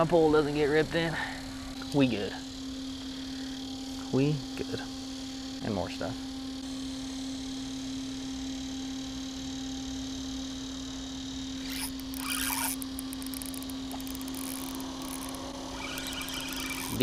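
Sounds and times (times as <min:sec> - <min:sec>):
low hum: 0:06.2 - 0:17.0
fishing reel clicks: 0:11.6 - 0:17.0.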